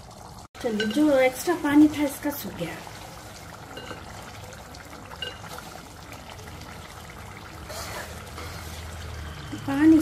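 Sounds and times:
gravy bubbling and sizzling in pot: 0.0 - 10.0
ladle stirring: 2.4 - 9.3.

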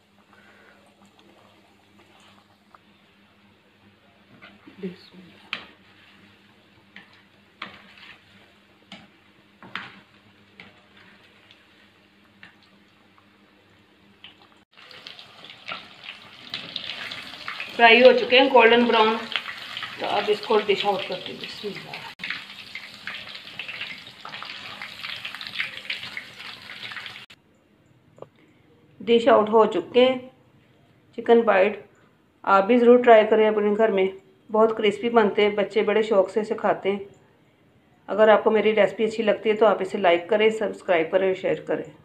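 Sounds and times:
faint frying sizzle: 0.0 - 27.4.

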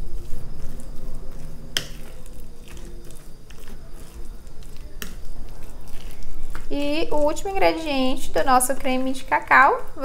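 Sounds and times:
fork mashing food squishing: 0.0 - 7.8.

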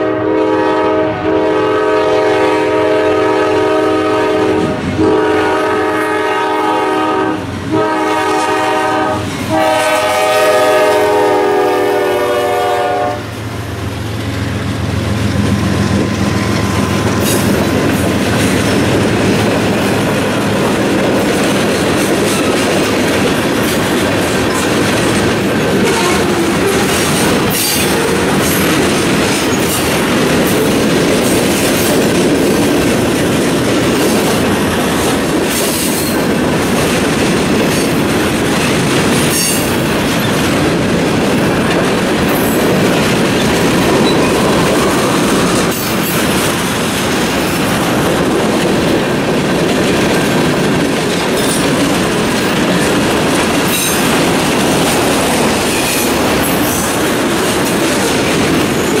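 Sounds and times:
train air horn: 0.0 - 13.4, 25.8 - 28.5
freight wheels clickety-clack: 14.2 - 59.0.

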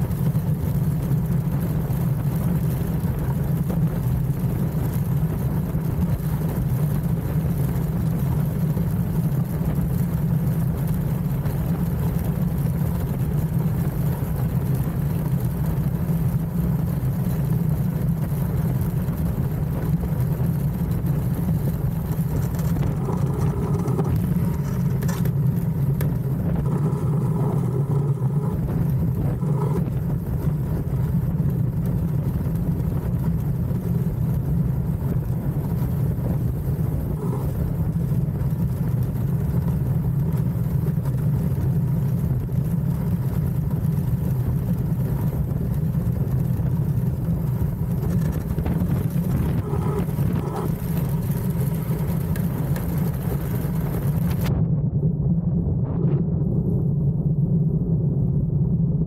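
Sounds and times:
iceboat runners rumbling on ice: 0.0 - 54.6
wind rushing: 22.2 - 31.0, 53.9 - 59.0.

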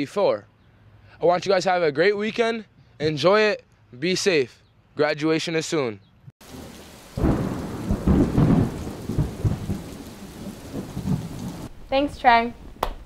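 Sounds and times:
rain: 6.4 - 12.0
thunder rumbling: 6.4 - 12.8.

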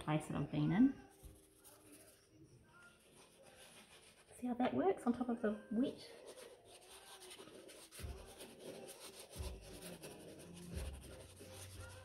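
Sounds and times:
clay scraping on paper: 2.9 - 4.4, 6.1 - 12.0.

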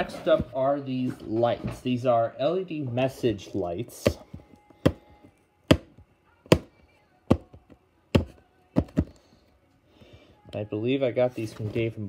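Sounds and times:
fingers tapping on cardboard box: 8.2 - 9.1.

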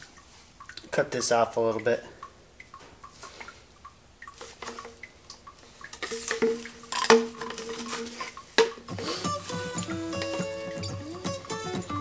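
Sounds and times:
plastic pipe clicks and taps: 2.6 - 9.0.

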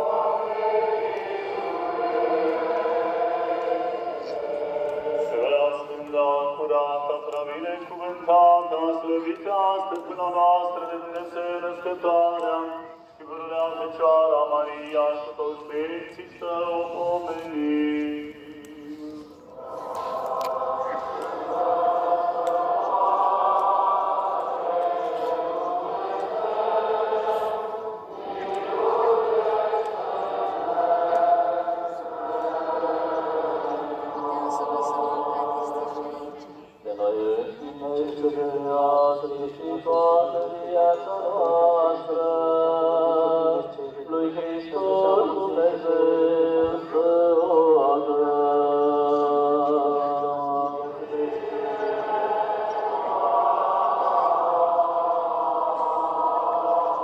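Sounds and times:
group singing church chant: 0.0 - 57.0
low held drone: 51.0 - 57.0.

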